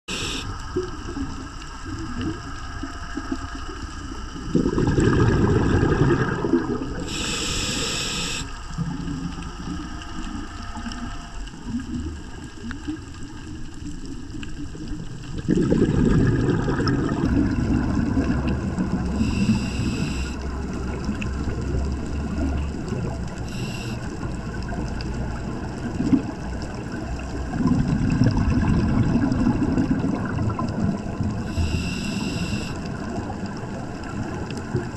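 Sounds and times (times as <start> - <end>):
regulator inhalation hiss: 0.1 - 0.6, 7.0 - 8.6, 19.2 - 20.4, 23.5 - 24.1, 31.5 - 32.8
steady underwater hiss: 0.1 - 15.4, 16.5 - 27.5, 28.1 - 34.9
exhaled bubbles rumbling: 0.1 - 34.9.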